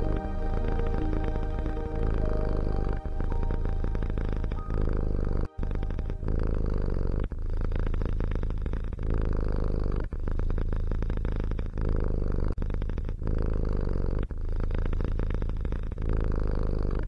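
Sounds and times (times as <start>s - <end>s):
cat purring: 3.6s - 17.0s.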